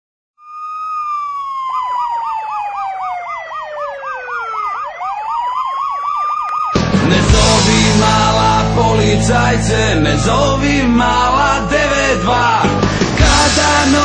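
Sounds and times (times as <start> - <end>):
fast warbling siren: 0.4 - 6.9, 9.3 - 12.9
police siren wailing: 0.4 - 14.0.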